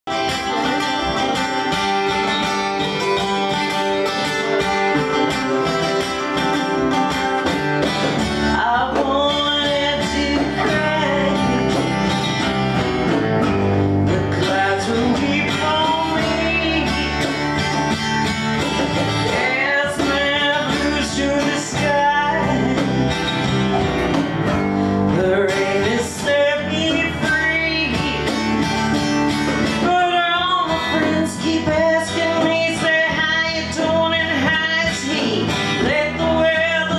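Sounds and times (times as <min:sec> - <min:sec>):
acoustic and resonator guitars: 0:00.0 - 0:36.9
bass guitar: 0:00.0 - 0:36.9
woman singing: 0:08.4 - 0:12.5, 0:14.0 - 0:17.8, 0:19.2 - 0:23.6, 0:25.1 - 0:28.9, 0:29.6 - 0:36.9.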